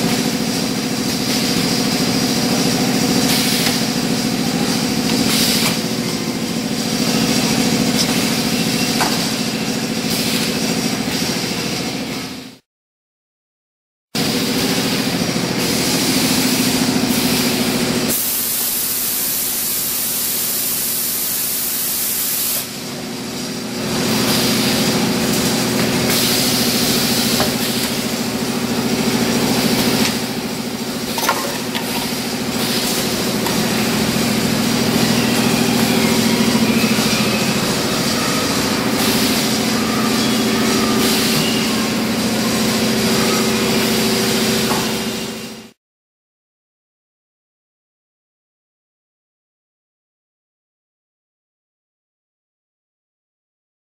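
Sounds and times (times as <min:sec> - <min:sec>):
machine hum: 0:00.0 - 0:12.6, 0:22.7 - 0:45.8.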